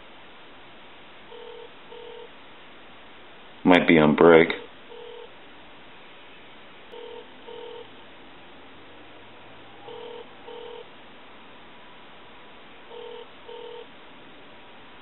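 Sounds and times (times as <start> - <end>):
telephone line hiss: 1.2 - 2.6, 3.7 - 5.4, 6.9 - 8.1, 9.7 - 11.0, 11.8 - 14.0
telephone ringback tone: 1.3 - 2.3, 4.9 - 5.3, 6.9 - 8.0, 9.8 - 10.9, 12.9 - 13.9.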